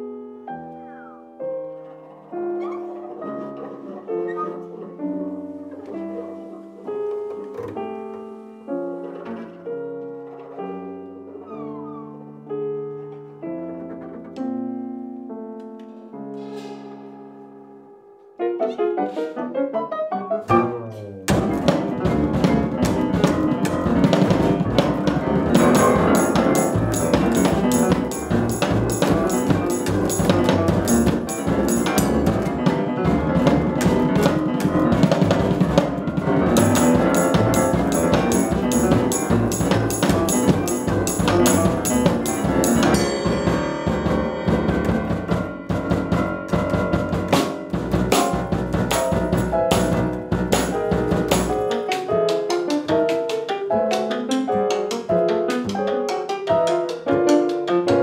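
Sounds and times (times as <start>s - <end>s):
grand piano: 0.0s - 58.0s
double bass: 20.5s - 51.8s
busy drum kit: 20.5s - 58.0s.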